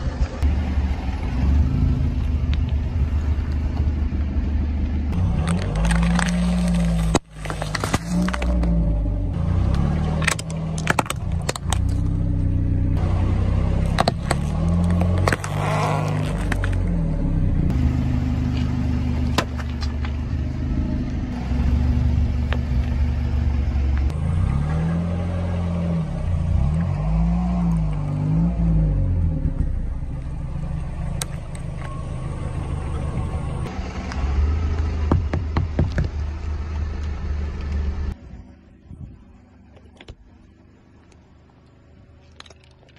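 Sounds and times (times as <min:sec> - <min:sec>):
car engine running slowly: 0:00.0 - 0:42.9
tyre crushing plastic objects: 0:05.3 - 0:08.8, 0:10.2 - 0:12.0, 0:13.9 - 0:16.8.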